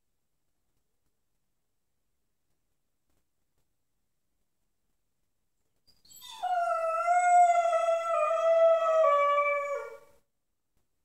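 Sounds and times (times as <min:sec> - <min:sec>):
puppy howling: 0:06.1 - 0:10.0.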